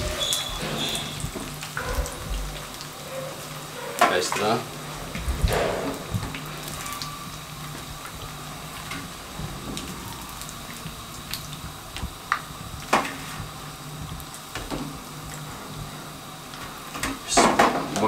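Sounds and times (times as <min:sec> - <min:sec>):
oil bubbling and sizzling in a pan: 0:00.0 - 0:18.0
steady low hum: 0:04.6 - 0:18.0.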